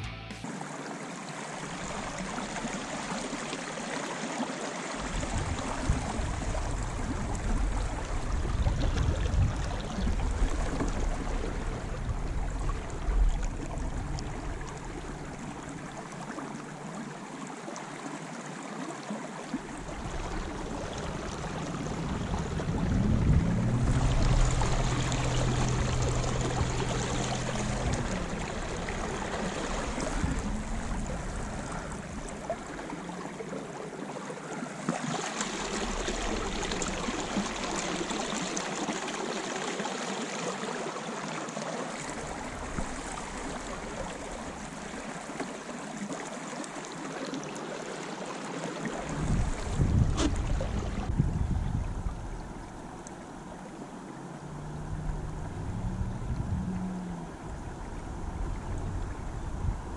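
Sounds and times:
water lapping against boat: 0:00.4 - 0:59.9
low hum: 0:05.0 - 0:16.9, 0:19.6 - 0:33.8, 0:49.0 - 0:59.9.

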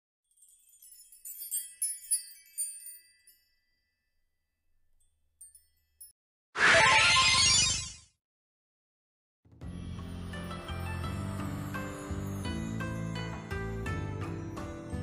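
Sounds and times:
tinkling chime: 0:00.2 - 0:06.2, 0:09.7 - 0:15.0.

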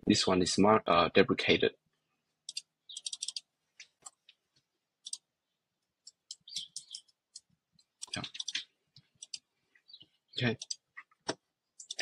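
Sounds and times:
keyboard keys clicking: 0:02.5 - 0:03.4, 0:06.1 - 0:08.6, 0:11.8 - 0:12.0.

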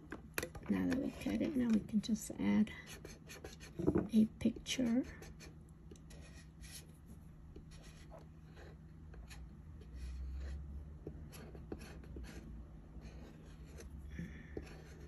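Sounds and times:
dull rumble of handling: 0:00.0 - 0:02.6.

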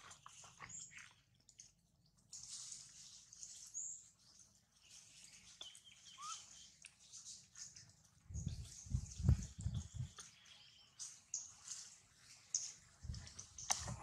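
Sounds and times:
short bird chirps: 0:05.6 - 0:06.8.

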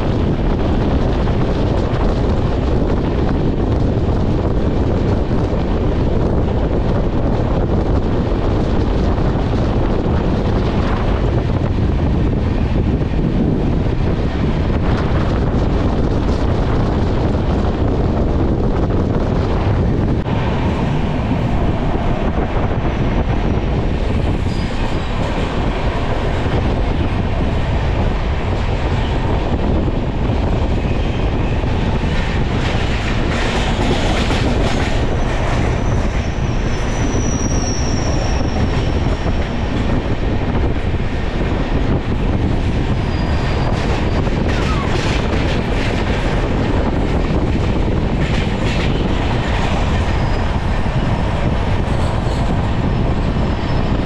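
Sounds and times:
train rumbling on rails: 0:00.0 - 0:54.0
wheels clacking over rail joints: 0:20.2 - 0:53.9.

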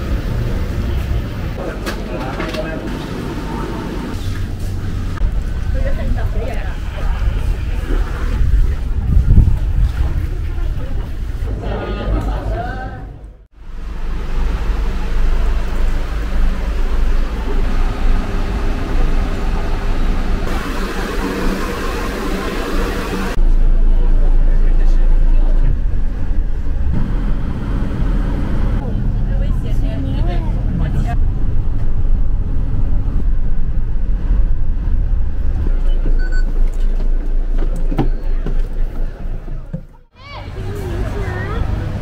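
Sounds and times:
bus engine rumble: 0:00.0 - 0:42.0
traffic noise: 0:00.0 - 0:42.0
short electronic beeps: 0:35.9 - 0:36.5.

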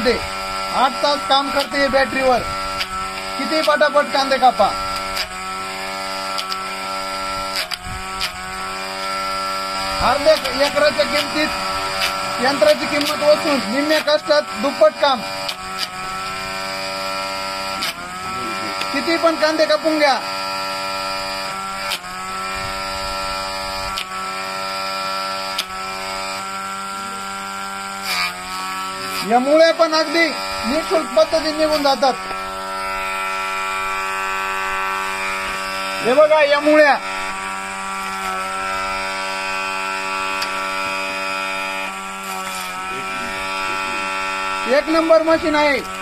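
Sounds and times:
electric motor humming: 0:00.0 - 0:46.0
blade snapping through onion: 0:07.5 - 0:08.4.

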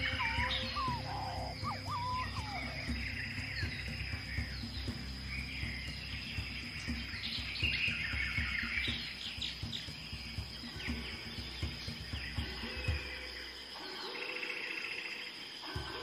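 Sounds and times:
steady high tone: 0:00.0 - 0:03.7
birds chirping and trilling: 0:00.0 - 0:16.0
soft ambient music: 0:00.0 - 0:16.0.

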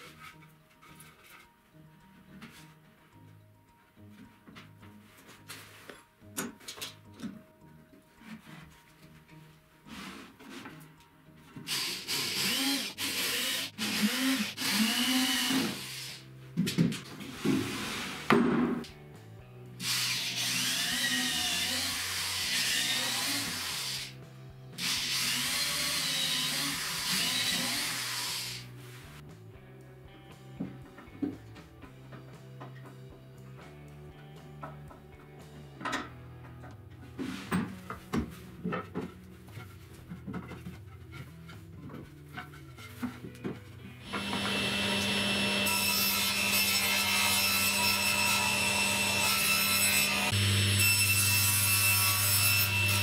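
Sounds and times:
background music: 0:00.0 - 0:53.0
electric drill whining: 0:11.7 - 0:16.2, 0:44.1 - 0:45.8
table saw cutting plywood: 0:11.7 - 0:16.2, 0:19.8 - 0:24.1, 0:24.8 - 0:28.7, 0:44.0 - 0:53.0.

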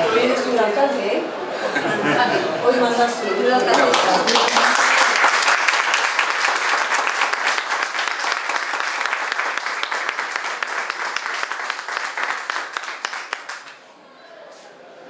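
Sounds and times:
people applauding: 0:03.7 - 0:13.8.

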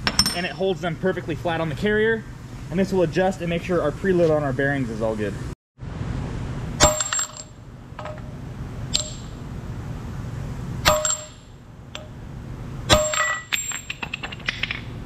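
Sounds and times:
hammer striking steel: 0:06.8 - 0:08.3, 0:08.9 - 0:09.4, 0:10.8 - 0:11.4, 0:12.9 - 0:14.0.

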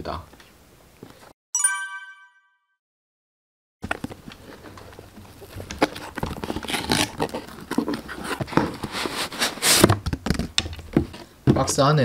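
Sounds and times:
cardboard rustling and scraping: 0:04.0 - 0:10.0.

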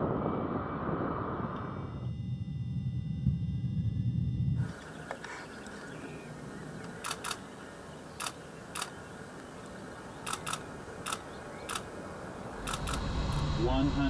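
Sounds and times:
camera shutters clicking: 0:06.8 - 0:07.5, 0:08.2 - 0:09.0, 0:10.2 - 0:11.9, 0:12.6 - 0:13.1.

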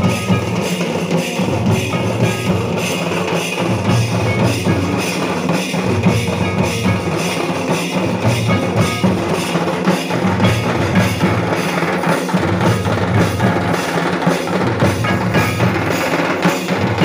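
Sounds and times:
hand-played barrel drum: 0:00.0 - 0:17.0
stick-beaten kettle drum: 0:00.0 - 0:17.0.

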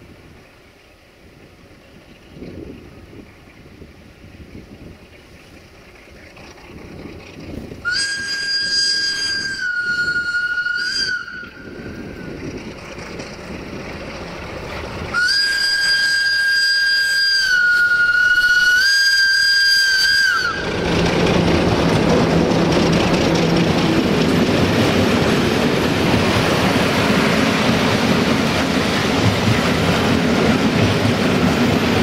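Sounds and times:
locomotive diesel engine: 0:00.0 - 0:32.0
locomotive horn blasts: 0:07.9 - 0:11.7, 0:15.2 - 0:20.6.

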